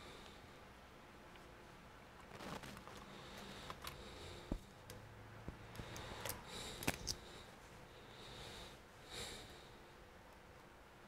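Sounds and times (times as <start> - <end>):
soft breaths: 0.0 - 0.7, 2.3 - 10.3
laptop parts clicking: 5.7 - 7.2.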